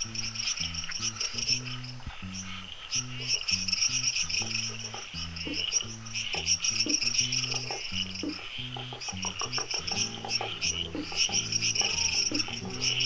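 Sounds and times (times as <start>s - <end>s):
background music with bass line: 0.0s - 13.0s
crickets trilling: 0.0s - 13.0s.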